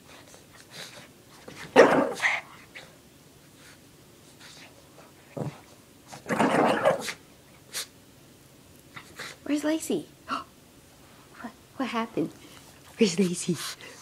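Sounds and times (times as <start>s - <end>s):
dog grunt: 5.3s - 5.6s, 6.2s - 7.2s
dog growling: 5.3s - 7.2s.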